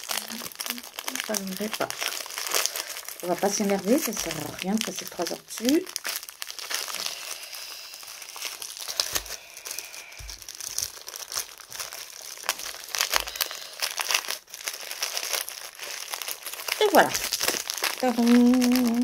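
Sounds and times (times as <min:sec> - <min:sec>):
plastic packaging crinkling: 0:00.0 - 0:19.0.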